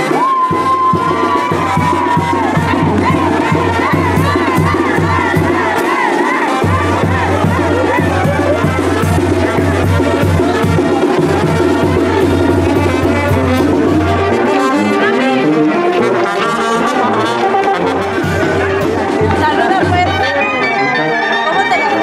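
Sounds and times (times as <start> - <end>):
snare and bass drum: 0.0 - 14.3, 17.9 - 20.2
brass band playing: 0.0 - 22.0
trumpets: 0.0 - 22.0.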